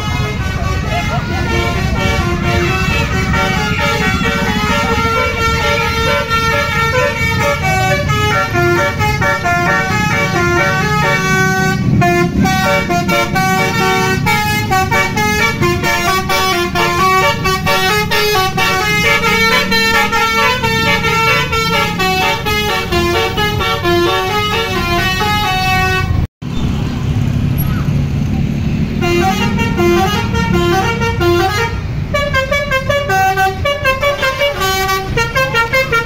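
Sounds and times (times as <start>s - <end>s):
musical bus horn melody: 0.0s - 26.3s, 28.9s - 36.0s
bus engine rumble: 0.0s - 36.0s
traffic: 0.0s - 36.0s.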